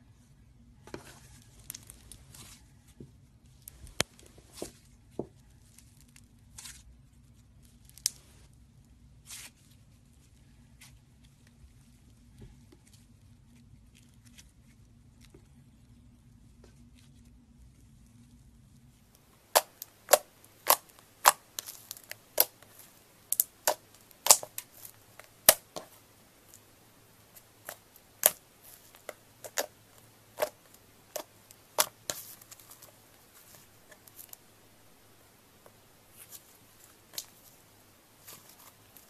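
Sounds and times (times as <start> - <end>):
slime popping and clicking: 23.3 - 24.6.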